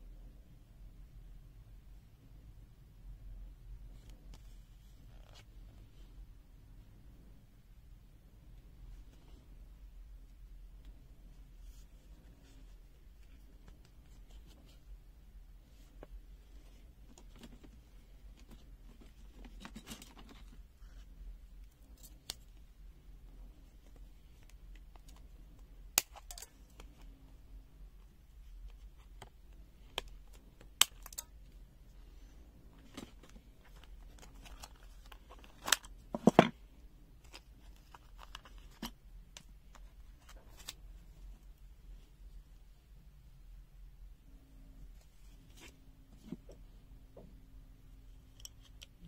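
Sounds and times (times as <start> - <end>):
card rustling: 32.7 - 36.5, 37.2 - 38.9.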